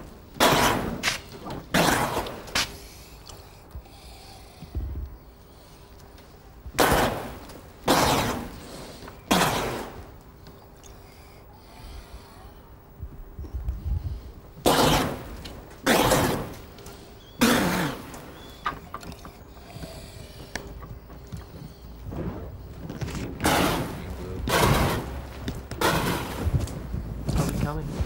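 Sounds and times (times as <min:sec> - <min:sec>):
rushing bursts of flame: 0:21.9 - 0:28.0.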